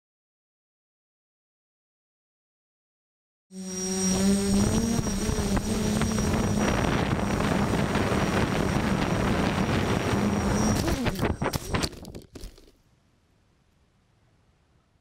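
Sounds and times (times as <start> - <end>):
drone motors humming: 3.6 - 12.6
wind rushing: 4.1 - 11.8.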